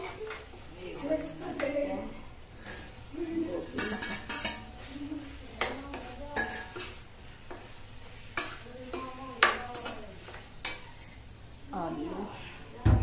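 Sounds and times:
faint frying sizzle: 0:00.0 - 0:13.0
metal spatula clinking against pan: 0:03.8 - 0:04.7, 0:05.6 - 0:07.0, 0:08.4 - 0:10.9.

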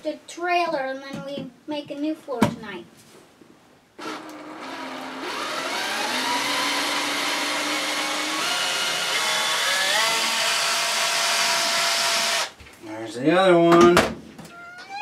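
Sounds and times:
cordless drill whining: 0:04.0 - 0:12.6.

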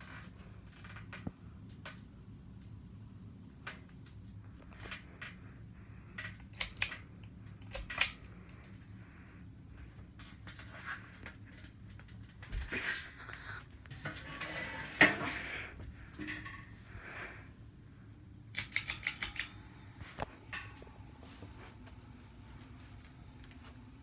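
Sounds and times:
ceiling fan motor humming: 0:00.0 - 0:24.0
sharp metallic clicks: 0:18.5 - 0:19.6.

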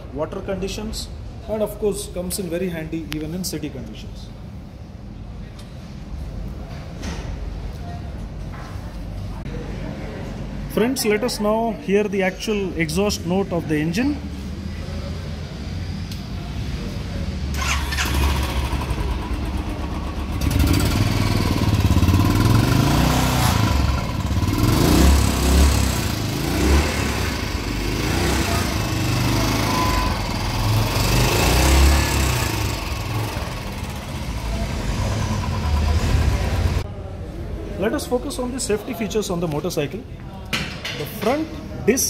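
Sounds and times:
motorcycle engine revving: 0:17.5 - 0:36.8.

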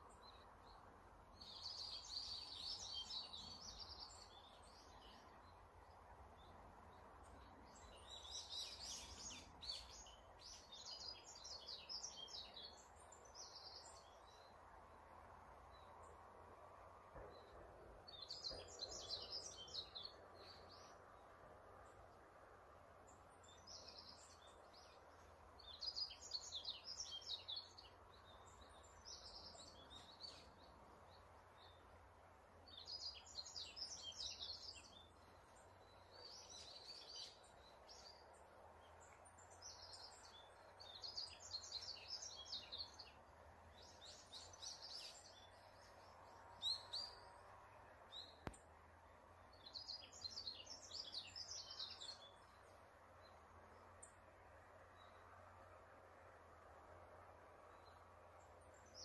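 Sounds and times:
faint forest ambience hiss: 0:00.0 - 0:59.0
songbird twittering: 0:01.4 - 0:05.6, 0:06.4 - 0:14.6, 0:17.2 - 0:21.2, 0:23.1 - 0:31.9, 0:32.6 - 0:54.2.

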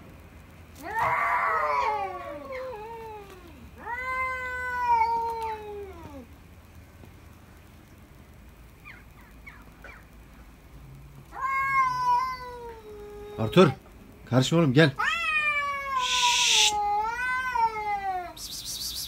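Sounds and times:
cats yowling: 0:00.8 - 0:06.3, 0:11.3 - 0:13.8, 0:15.0 - 0:18.5.

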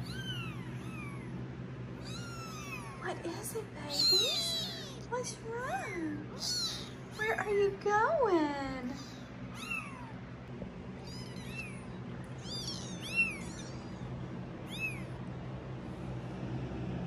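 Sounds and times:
kittens mewing: 0:00.0 - 0:03.2, 0:03.8 - 0:05.1, 0:05.7 - 0:07.2, 0:08.9 - 0:10.3, 0:11.0 - 0:15.3
fan humming: 0:00.0 - 0:17.0.

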